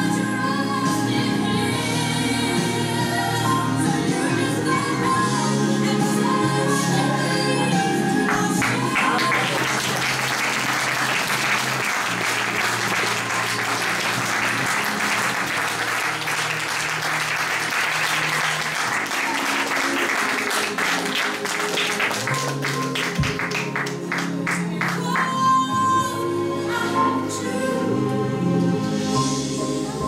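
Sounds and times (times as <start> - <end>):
audience applauding: 8.3 - 25.5.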